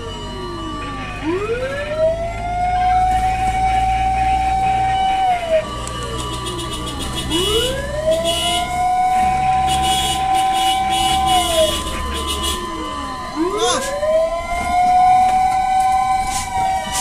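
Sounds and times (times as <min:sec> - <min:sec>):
fire truck siren wailing: 0:00.0 - 0:17.0.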